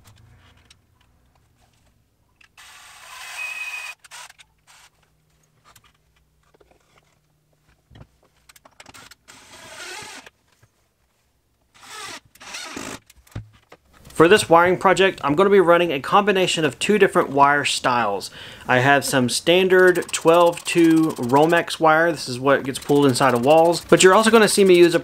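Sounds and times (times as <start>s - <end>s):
cordless drill whining: 2.6s - 4.9s, 8.9s - 10.3s, 11.8s - 13.0s.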